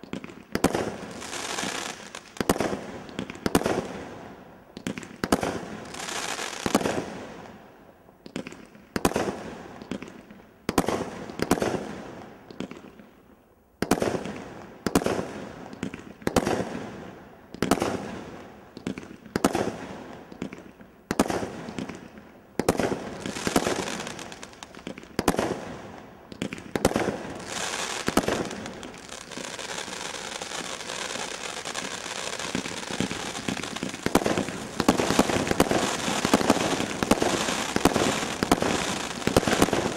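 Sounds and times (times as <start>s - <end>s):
firework crackling: 0.6s - 2.8s, 22.6s - 39.9s
firework bangs: 26.3s - 39.9s.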